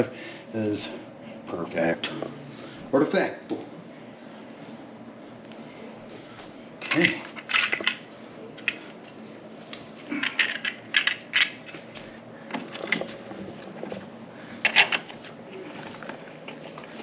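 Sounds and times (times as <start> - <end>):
small hard parts clattering: 6.8 - 8.0, 10.1 - 11.8.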